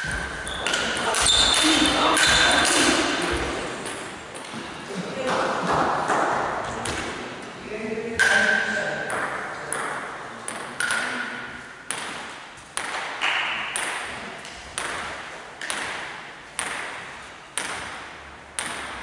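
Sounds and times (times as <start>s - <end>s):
table tennis ball bouncing: 8.2s - 19.0s.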